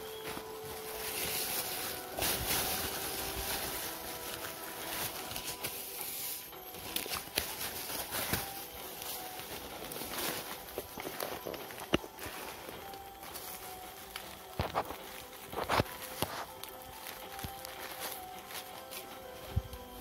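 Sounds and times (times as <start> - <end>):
plastic bags rustling: 0.0 - 20.0.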